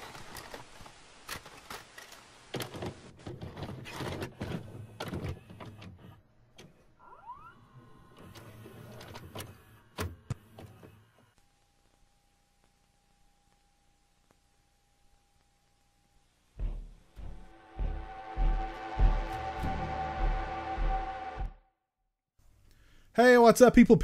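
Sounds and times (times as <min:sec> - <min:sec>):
rising whine: 0:16.6 - 0:21.8.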